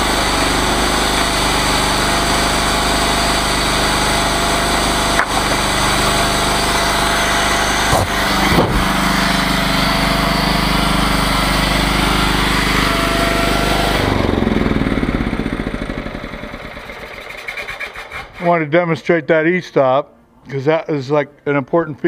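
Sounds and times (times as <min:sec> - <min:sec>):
chainsaw engine running: 0:00.0 - 0:18.4
sharp knocks: 0:05.1 - 0:06.1, 0:07.7 - 0:09.2.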